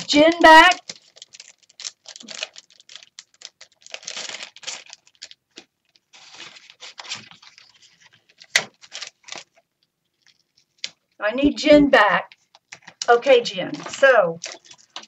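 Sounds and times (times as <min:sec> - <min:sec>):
thin plastic rustling and crinkling: 0:00.0 - 0:11.2, 0:12.3 - 0:13.1, 0:13.7 - 0:15.0.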